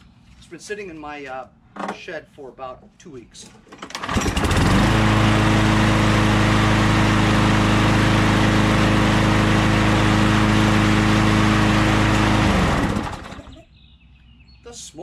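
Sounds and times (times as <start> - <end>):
lawn mower engine running: 3.9 - 13.6.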